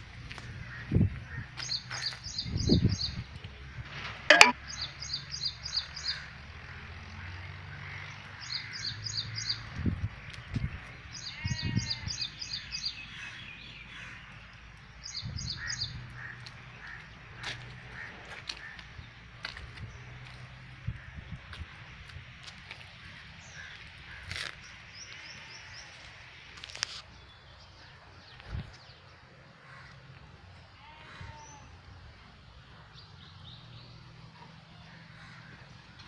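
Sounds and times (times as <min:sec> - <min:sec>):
wind rumble on microphone: 0:00.0 - 0:01.6, 0:02.3 - 0:04.0, 0:09.6 - 0:12.2, 0:19.0 - 0:23.2, 0:28.3 - 0:29.0
sharp click: 0:04.3 - 0:04.6.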